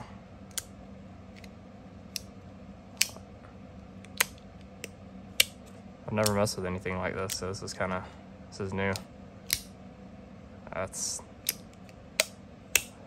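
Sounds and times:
magnetic metal pieces clicking: 0.5 - 0.7, 4.0 - 6.5, 8.9 - 9.7, 11.4 - 13.0.

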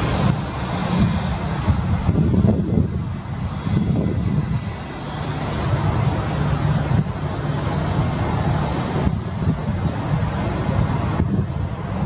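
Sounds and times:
jet engines rumbling: 0.0 - 12.0
wind buffeting microphone: 0.0 - 12.0.

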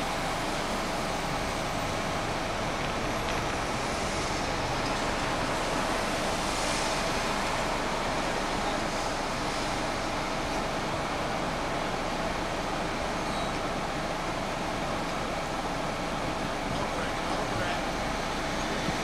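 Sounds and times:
cars passing on road: 0.0 - 12.9.

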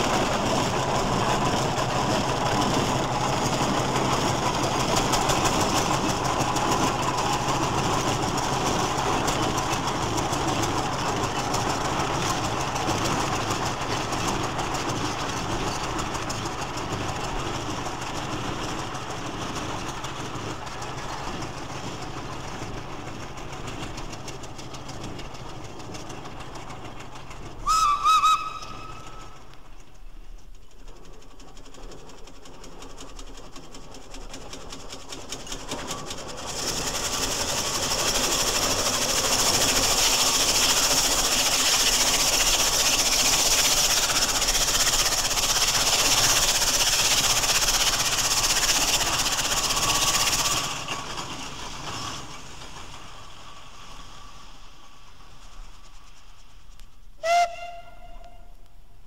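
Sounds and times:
steam traction engine running: 0.0 - 59.0
steam whistle blasts: 27.6 - 29.4, 57.2 - 58.7.

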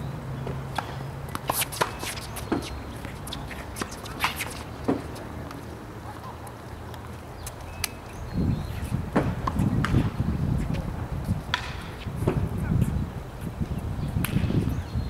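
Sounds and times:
tennis ball struck by rackets: 0.4 - 5.2, 11.4 - 12.5
shoes scuffing on hard court: 0.5 - 5.7.

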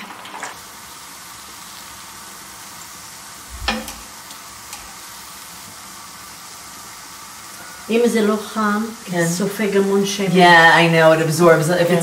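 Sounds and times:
dough sizzling in hot oil: 0.0 - 12.0
sharp knock: 3.6 - 4.0.

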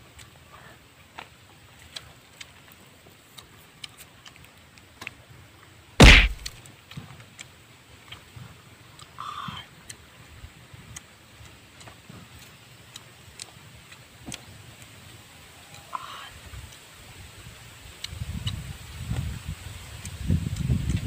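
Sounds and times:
loud thump: 6.0 - 6.5.

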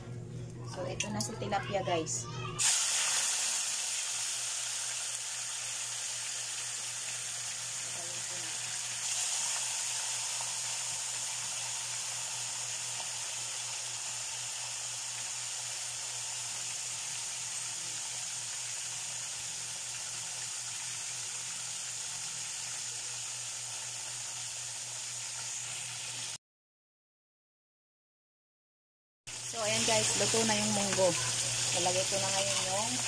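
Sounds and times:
low steady hum: 0.0 - 2.4
fish frying in hot oil: 2.6 - 26.4, 29.3 - 33.0.

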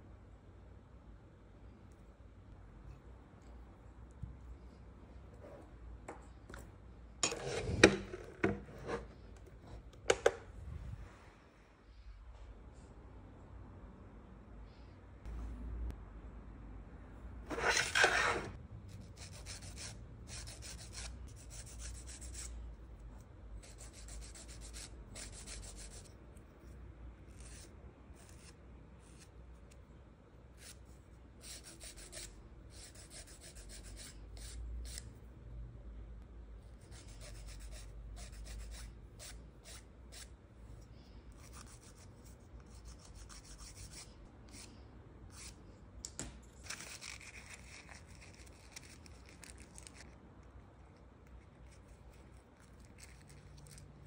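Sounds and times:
nail file rasping fingernails: 23.6 - 26.1, 41.4 - 44.7.

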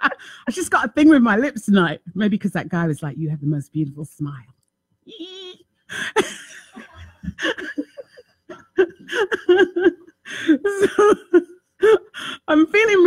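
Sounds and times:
woman laughing: 5.1 - 12.0.

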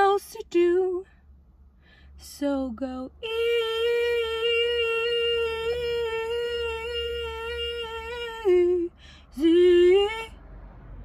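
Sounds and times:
woman singing unaccompanied: 0.0 - 1.1, 2.2 - 10.3
woman breathing in: 1.7 - 2.2.

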